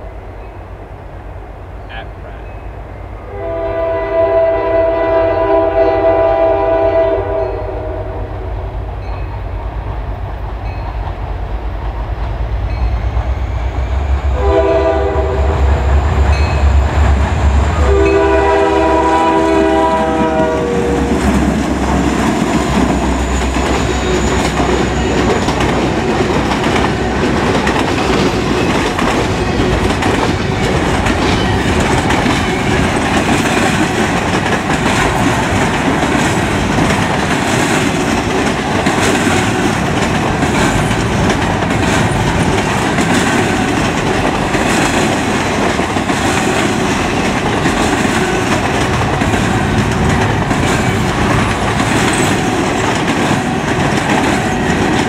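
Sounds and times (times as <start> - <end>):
locomotive air horn blasts: 3.3 - 8.5, 14.3 - 15.9, 17.8 - 21.2
diesel locomotive rumble: 8.3 - 55.0
wheel and rail clatter: 21.2 - 55.0.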